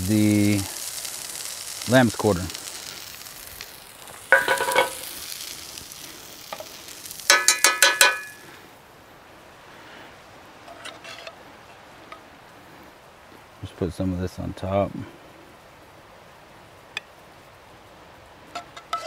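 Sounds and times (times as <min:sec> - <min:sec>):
food sizzling in pan: 0:00.0 - 0:08.9, 0:15.7 - 0:19.0
metal spoon clinking on pan: 0:04.3 - 0:05.0, 0:07.3 - 0:08.4.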